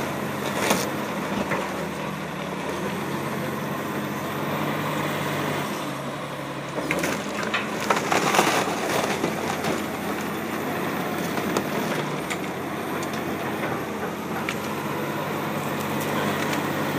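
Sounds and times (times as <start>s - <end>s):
diesel engine running: 0.0s - 16.9s
cracking and crunching of debris: 0.4s - 3.0s, 6.7s - 16.9s.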